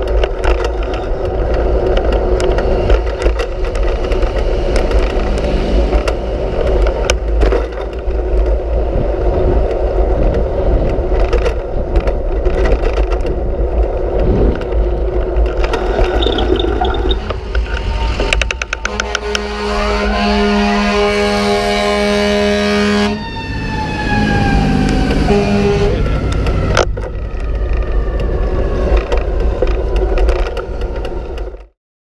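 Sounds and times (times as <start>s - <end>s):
bike rattling and knocking: 0.0s - 8.6s, 9.6s - 19.0s
wind rumble: 0.0s - 19.5s
road noise: 0.0s - 31.7s.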